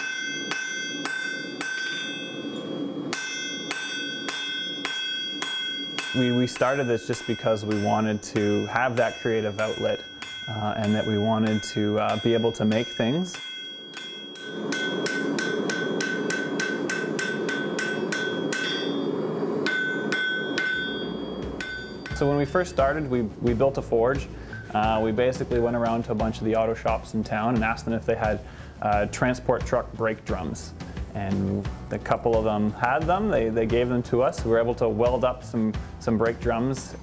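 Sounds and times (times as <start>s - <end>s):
hammer striking anvil: 0.0s - 28.4s.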